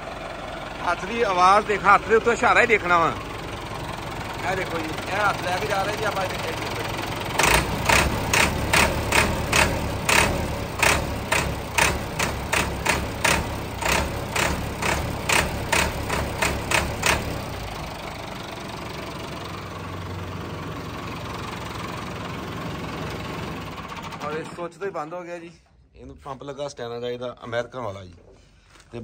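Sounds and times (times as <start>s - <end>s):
tractor diesel engine running: 0.0s - 24.9s
sharp engine knocks: 7.4s - 17.6s.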